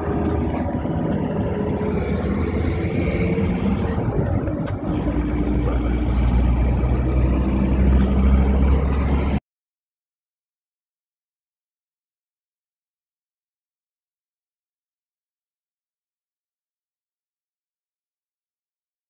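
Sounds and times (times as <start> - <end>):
road and engine rumble inside car: 0.0 - 9.4.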